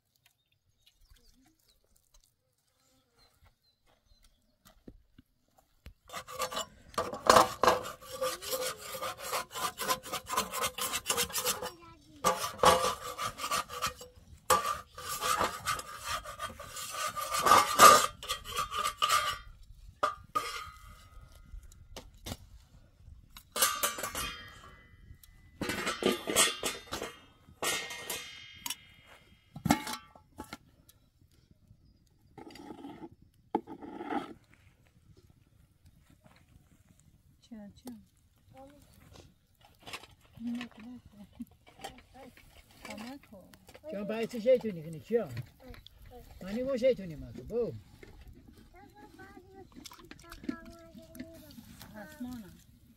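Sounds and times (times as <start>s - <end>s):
rough scraping and rubbing: 6.0s - 22.7s, 32.4s - 35.0s, 38.0s - 52.9s.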